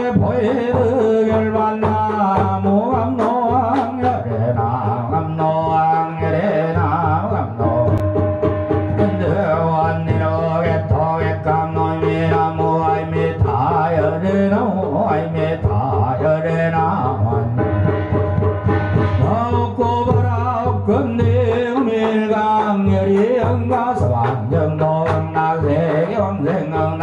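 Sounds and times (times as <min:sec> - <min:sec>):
light drumming: 0:00.0 - 0:27.0
ritual chanting: 0:00.0 - 0:27.0
low instrumental drone: 0:07.8 - 0:10.8, 0:16.8 - 0:21.0.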